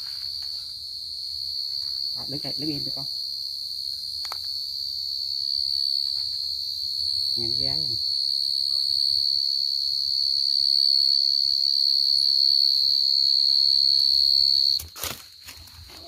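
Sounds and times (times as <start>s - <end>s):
cricket chirping: 0.0s - 16.0s
knocks and rustles in leaf litter: 14.8s - 16.0s.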